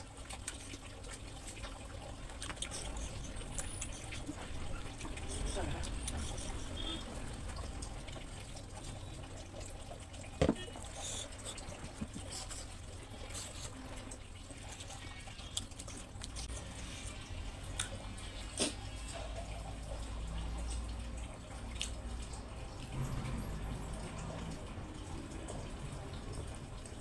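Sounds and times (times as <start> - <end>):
wet chewing and lip-smacking: 0.0 - 6.9, 14.6 - 18.8, 21.6 - 22.2.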